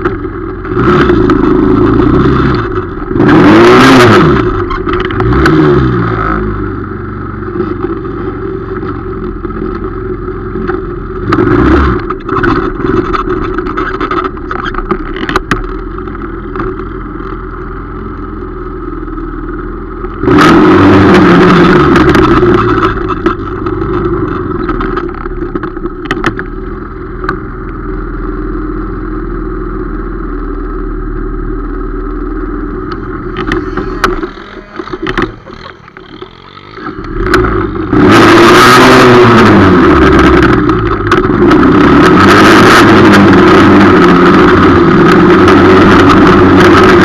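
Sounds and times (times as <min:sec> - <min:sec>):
quad engine revving: 0:00.6 - 0:09.0, 0:20.2 - 0:24.3, 0:32.7 - 0:47.0.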